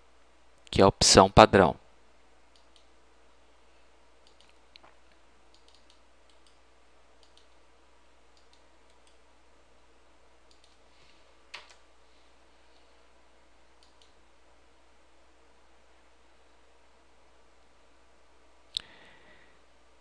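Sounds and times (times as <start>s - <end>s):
low steady hum: 0.0s - 20.0s
computer mouse clicks: 2.5s - 2.9s, 4.2s - 4.9s, 5.5s - 6.6s, 7.2s - 7.6s, 8.3s - 9.2s, 10.5s - 10.8s, 13.8s - 14.2s.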